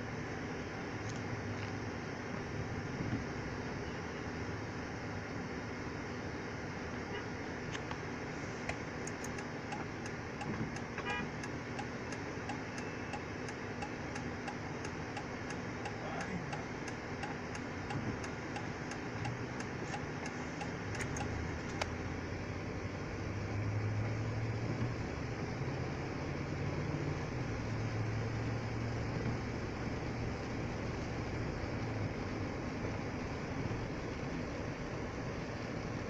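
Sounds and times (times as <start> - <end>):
car engine idling: 7.6 - 23.5
turn signal ticking: 7.7 - 22.0.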